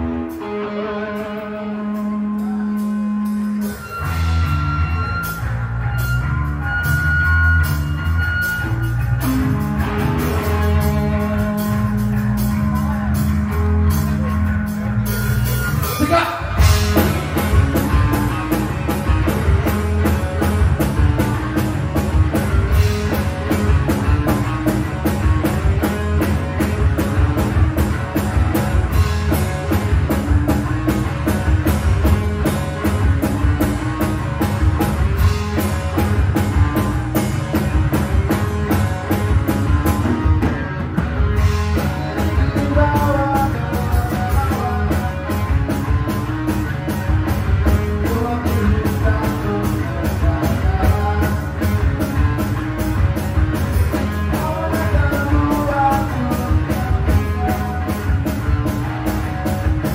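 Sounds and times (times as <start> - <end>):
electric bass: 0.0 - 59.9
electric guitar: 0.0 - 59.9
drum kit steady beat: 1.8 - 59.9.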